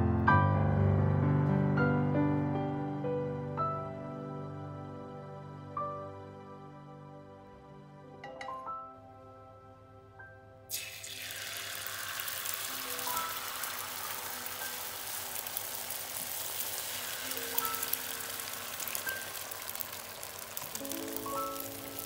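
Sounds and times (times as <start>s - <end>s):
gentle background music: 0.0s - 22.0s
eggs sizzling in oil: 10.7s - 22.0s.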